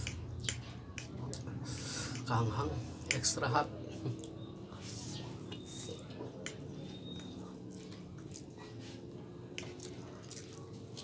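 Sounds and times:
mouth clicks and smacks: 0.0s - 2.4s
man chewing noodles: 4.0s - 11.0s.

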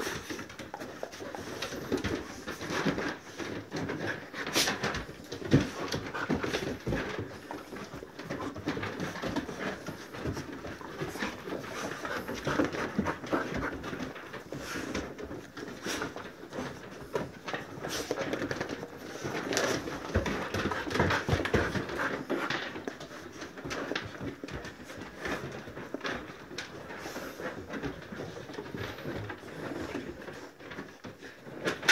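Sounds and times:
dogs panting: 0.0s - 31.9s
dogs scuffling: 0.0s - 31.9s.

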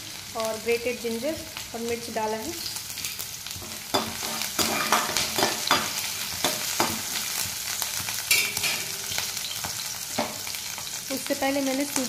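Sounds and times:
food sizzling in hot oil: 0.0s - 12.0s
spoon scraping and clinking pan: 3.6s - 7.1s, 8.3s - 9.4s.

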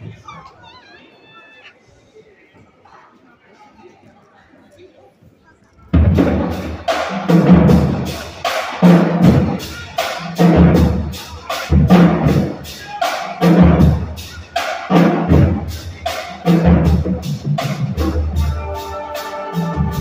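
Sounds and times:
music with heavy drum beat: 6.0s - 20.0s.

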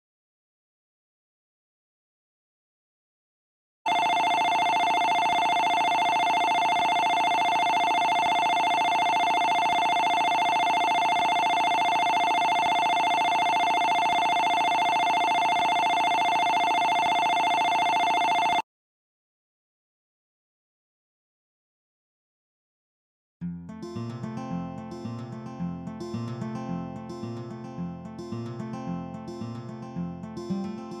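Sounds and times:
electric bell ringing: 3.9s - 18.6s.

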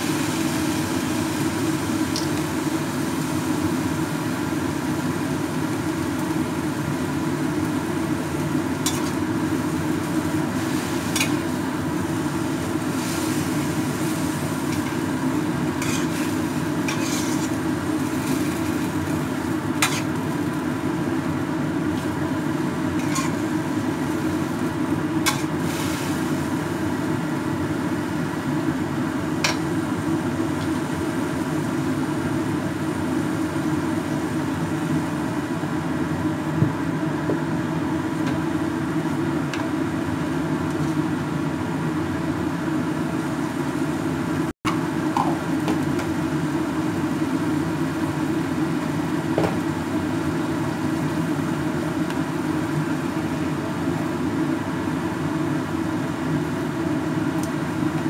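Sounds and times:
noodles sizzling in a wok: 0.0s - 58.0s
utensil scraping and tapping wok: 8.8s - 9.2s, 10.7s - 11.4s, 15.8s - 19.2s, 19.8s - 20.3s, 23.0s - 23.4s, 25.2s - 25.6s, 29.4s - 29.7s.

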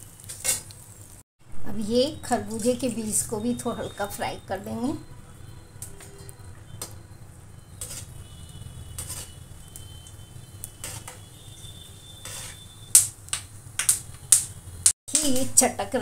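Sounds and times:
seeds crackling in hot oil: 0.0s - 1.2s, 1.8s - 16.0s.

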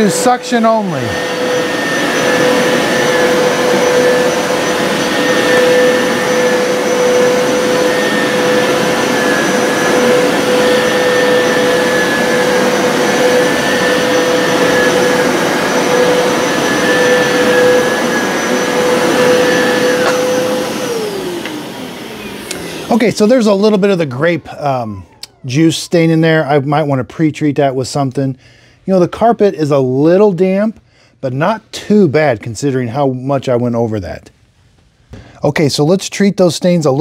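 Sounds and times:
suction air rushing: 0.0s - 26.2s
carpet cleaner motor whine: 0.0s - 26.9s.

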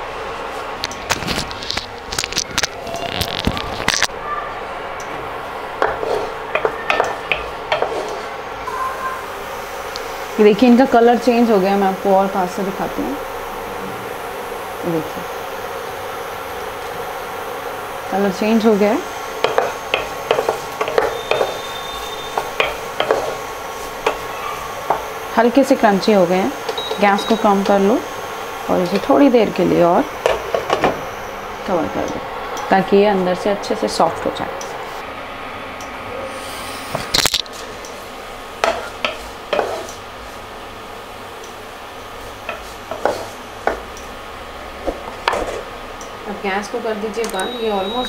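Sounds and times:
potatoes sizzling in a pan: 5.4s - 34.1s, 37.5s - 48.0s
wooden spatula scraping a pan: 5.8s - 8.4s, 19.4s - 25.1s, 38.6s - 40.0s, 42.5s - 43.8s, 45.2s - 45.7s.

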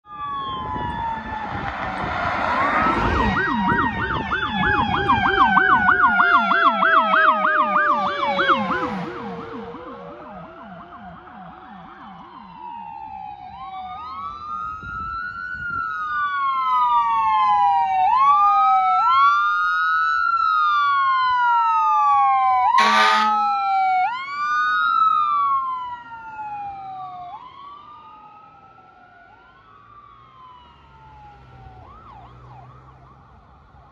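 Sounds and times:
ambulance sirens wailing: 0.0s - 33.9s
fast yelping siren: 0.1s - 33.9s
vehicle horn blast: 22.8s - 23.5s.

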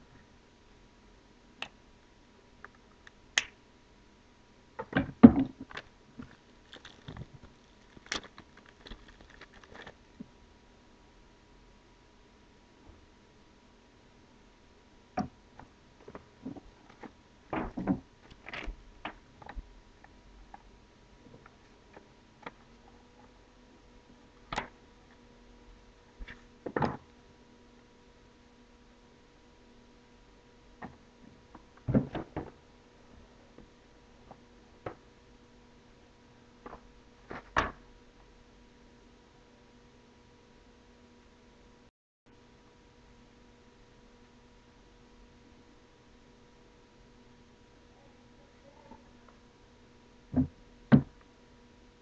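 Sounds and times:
faint steady hum: 0.0s - 52.0s
hands handling cable and box: 5.7s - 10.0s.

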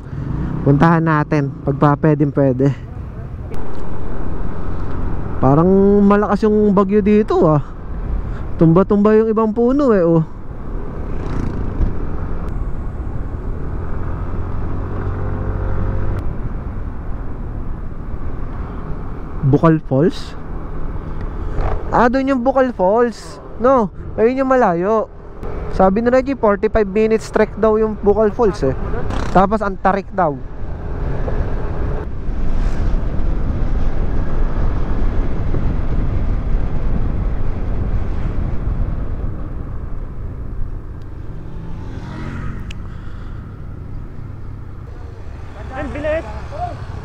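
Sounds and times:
road rumble: 0.0s - 47.0s
scooter engine hum: 2.9s - 6.7s, 10.4s - 17.7s, 36.9s - 47.0s
wind on microphone: 30.8s - 41.4s.

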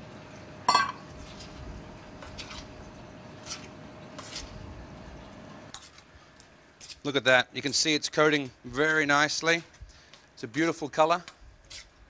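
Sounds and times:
metal spoon clinking on bowl: 0.7s - 1.0s.

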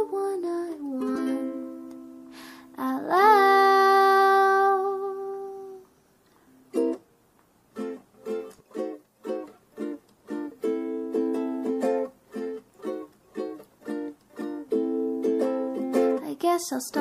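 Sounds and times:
plucked string chords: 7.8s - 16.2s.

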